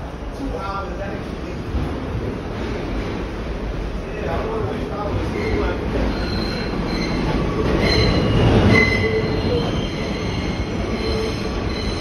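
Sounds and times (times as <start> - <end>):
subway car rumbling: 0.0 - 12.0
high wheel squeals: 5.3 - 12.0.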